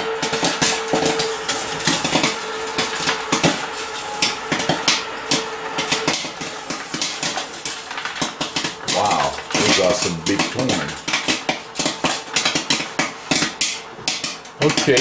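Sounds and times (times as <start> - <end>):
popcorn machine hum: 0.0 - 15.0
popcorn popping: 0.0 - 15.0.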